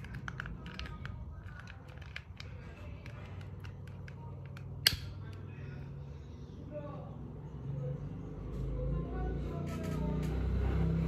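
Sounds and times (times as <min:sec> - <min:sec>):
plastic lighter clicks: 0:04.0 - 0:05.4.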